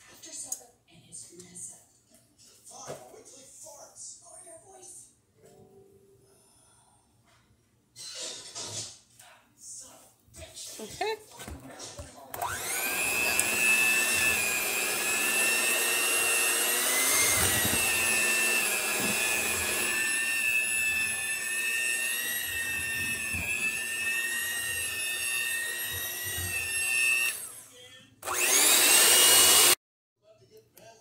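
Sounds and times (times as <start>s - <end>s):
electric hand mixer whining: 12.3s - 29.8s.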